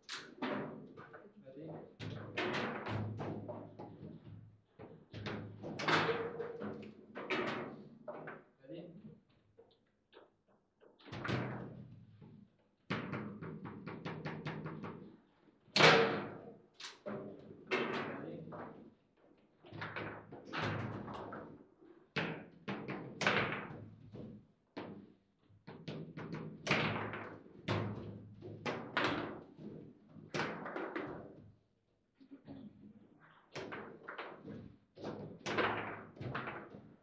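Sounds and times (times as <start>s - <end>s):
foosball ball and rods clattering: 5.2s - 8.5s, 33.6s - 37.0s.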